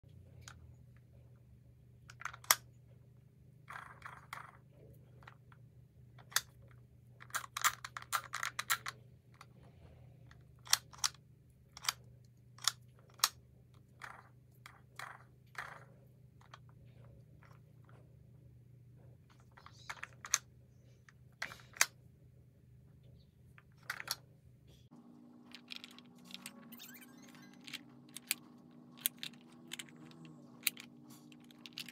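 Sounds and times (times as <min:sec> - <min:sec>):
plastic toy clicks and rattling: 0:02.1 - 0:02.6, 0:06.2 - 0:09.5, 0:10.3 - 0:16.7, 0:19.3 - 0:20.5, 0:23.6 - 0:24.2, 0:25.5 - 0:31.9.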